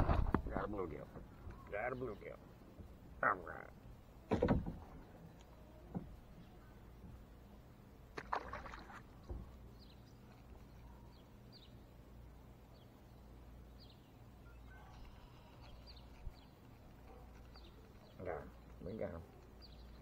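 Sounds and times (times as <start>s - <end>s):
clicking and rustling noise: 14.9s - 19.8s.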